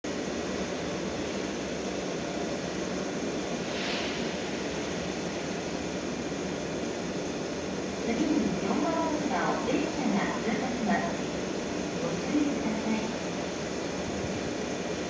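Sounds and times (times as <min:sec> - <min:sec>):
distant electric train rumble: 0:00.0 - 0:15.0
station background noise: 0:00.0 - 0:15.0
brief hiss: 0:03.6 - 0:05.7.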